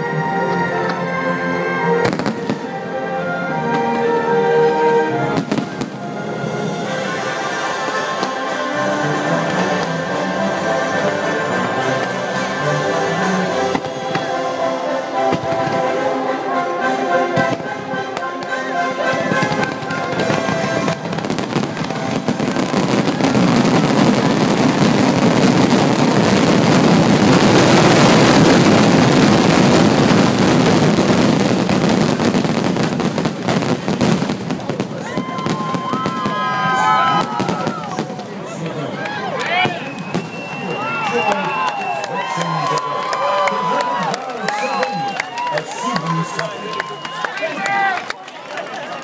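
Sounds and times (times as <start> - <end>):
orchestral music: 0.0 - 38.8
fireworks bursting and crackling: 2.0 - 2.9, 5.3 - 14.6, 15.2 - 16.2, 17.3 - 42.3.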